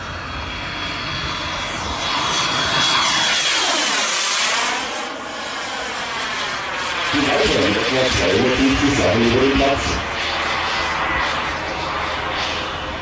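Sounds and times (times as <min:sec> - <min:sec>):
model jet turbine whining: 0:00.0 - 0:13.0.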